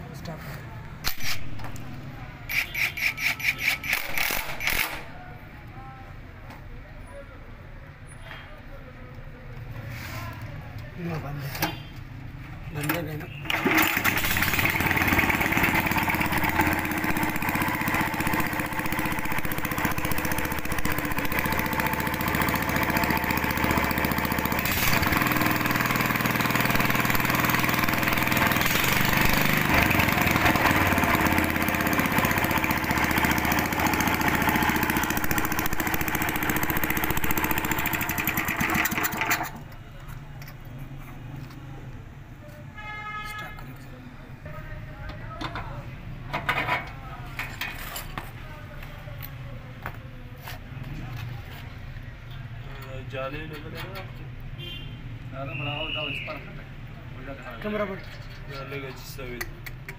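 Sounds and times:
single-cylinder petrol engine running: 1.0 - 5.0, 12.8 - 40.6.

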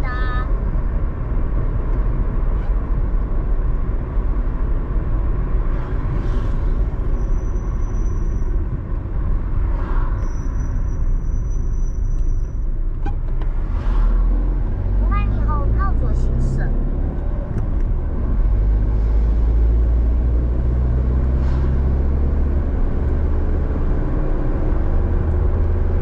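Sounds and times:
car engine and tyre rumble: 0.0 - 26.0
rushing noise: 5.6 - 12.1.

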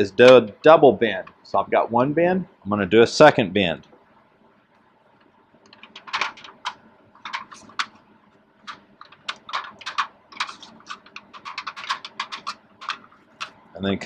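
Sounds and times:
thin metal sheet crinkling: 5.7 - 8.0, 8.6 - 13.6.

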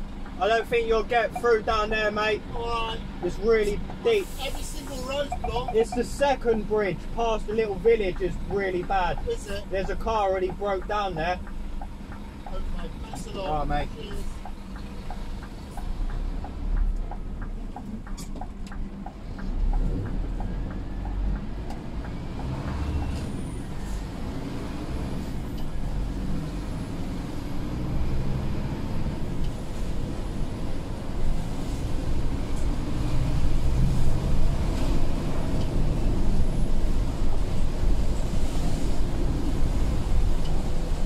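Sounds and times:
lorry diesel engine running: 0.0 - 41.0
road noise: 0.0 - 41.0
light regular ticks: 14.1 - 23.2.

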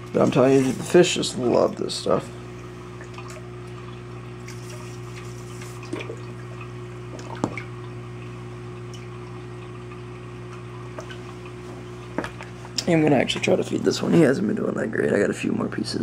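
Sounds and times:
moving water: 0.0 - 15.0
aquarium pump hum: 0.0 - 16.0
small drips or clicks: 3.0 - 12.9.

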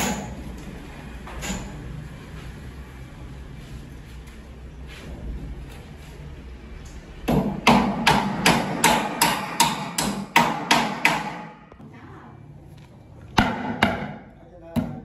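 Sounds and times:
hammer striking metal channel: 7.3 - 11.7, 13.4 - 15.0.

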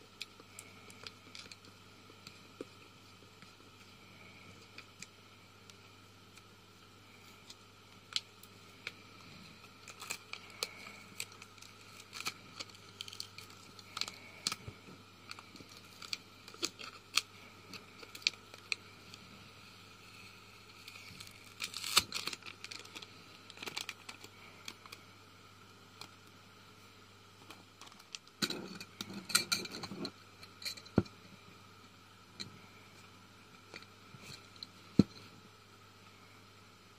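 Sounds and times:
foil crinkling: 7.4 - 18.8, 20.7 - 25.0.

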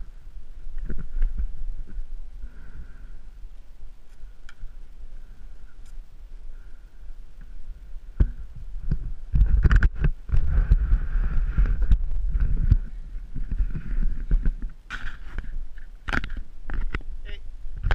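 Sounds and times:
rubbing and scraping on camera: 8.2 - 17.1.

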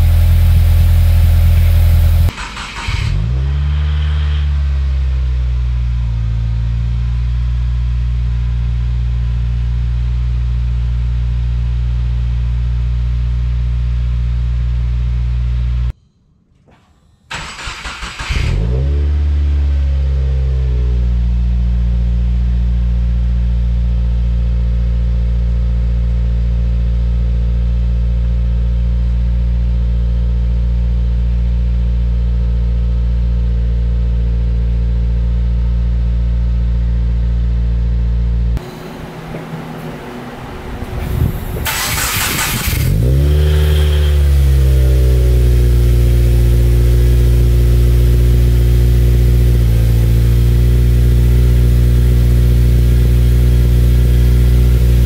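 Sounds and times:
car engine idling: 0.0 - 13.2, 35.1 - 55.0
engine cranking and starting: 2.3 - 3.7, 16.6 - 18.8, 40.8 - 44.0.

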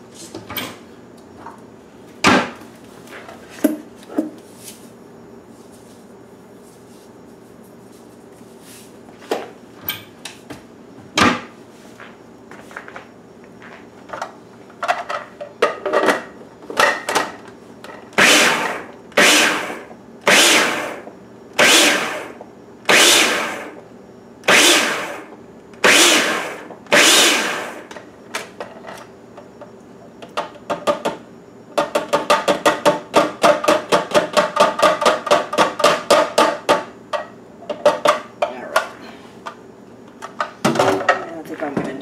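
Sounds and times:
food processor chopping in bursts: 18.2 - 23.8, 24.5 - 28.0, 31.8 - 36.8.

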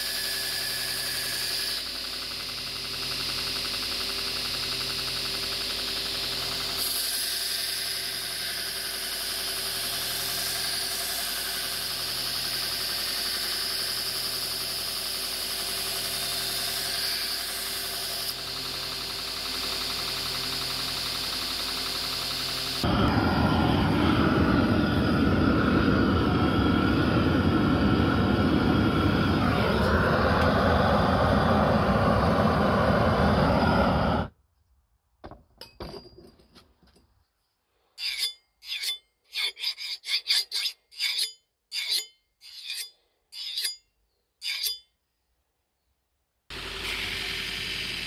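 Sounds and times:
belt grinder grinding metal: 6.4 - 18.5.

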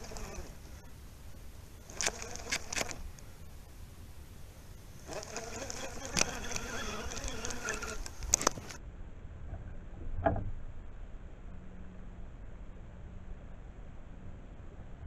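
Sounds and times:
camera handling clicks and rubbing: 2.0 - 3.0, 8.0 - 8.8.

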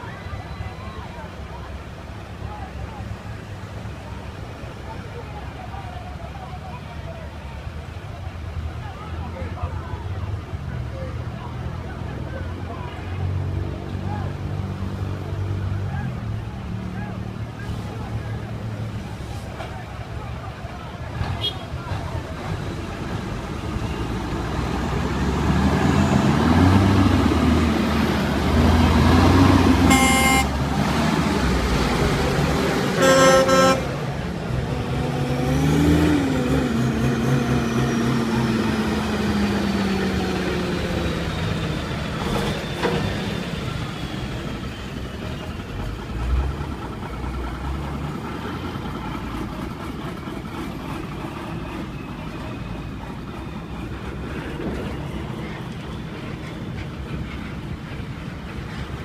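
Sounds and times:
heavy truck engines accelerating: 0.0 - 59.0
short horn toots: 29.9 - 30.6, 33.0 - 34.0.

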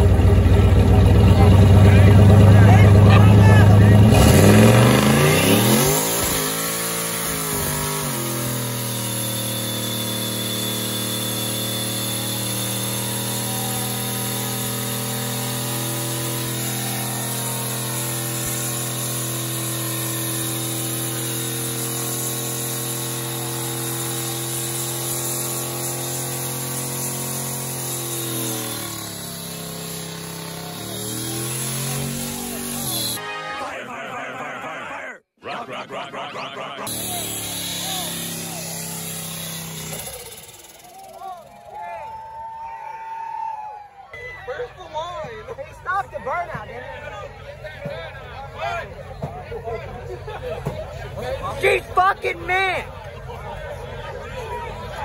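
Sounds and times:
pickup engine revving: 0.0 - 22.0.

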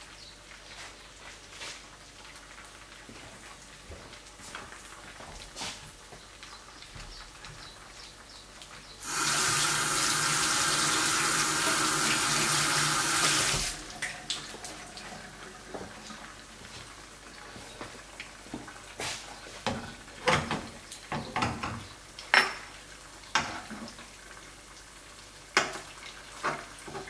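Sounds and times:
egg frying crackle: 0.0 - 27.0
tap running into sink: 9.0 - 13.8.

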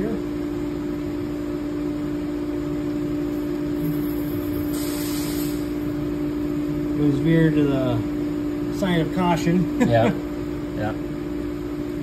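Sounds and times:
grinder machine two-tone hum: 0.0 - 12.0
short hiss: 4.7 - 5.7.

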